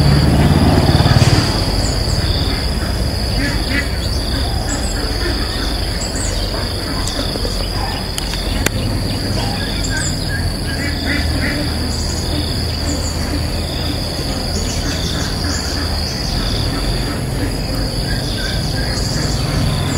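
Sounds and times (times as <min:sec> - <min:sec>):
birds chirping: 0:00.0 - 0:19.9
high-pitched insect drone: 0:00.0 - 0:19.9
low steady rumble: 0:00.0 - 0:19.9.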